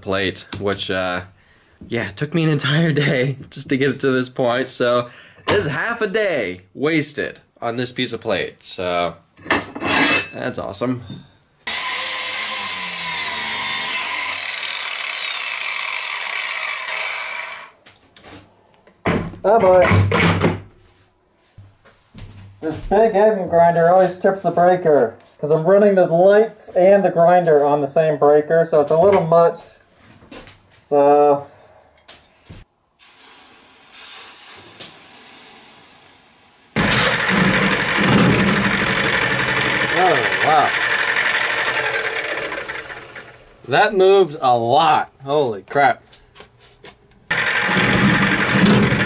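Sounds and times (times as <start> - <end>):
milling machine cutting metal: 11.7 - 17.7, 36.8 - 43.4, 47.3 - 49.0
angle grinder grinding steel: 11.7 - 17.8, 36.8 - 43.7, 47.3 - 49.0
aerosol can hissing: 33.0 - 36.6.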